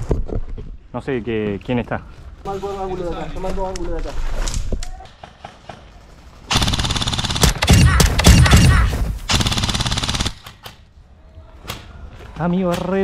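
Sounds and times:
airsoft rifle full auto fire: 6.5 - 10.5.

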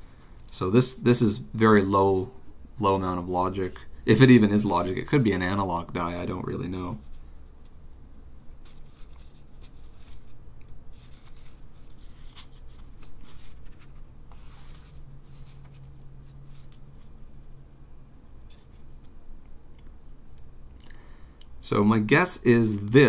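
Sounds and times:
low steady hum: 0.0 - 23.0
plastic glove rustling: 3.4 - 17.6.

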